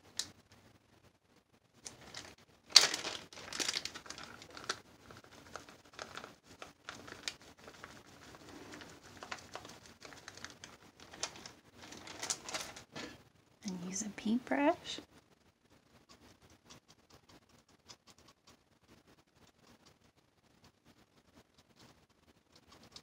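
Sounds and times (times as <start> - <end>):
plastic bag crinkling: 1.8 - 13.1.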